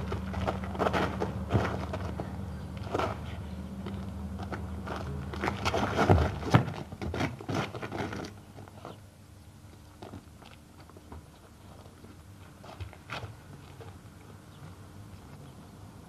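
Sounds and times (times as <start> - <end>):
footsteps: 0.0 - 9.0
scuffling feet on concrete: 0.0 - 9.1, 9.7 - 15.7.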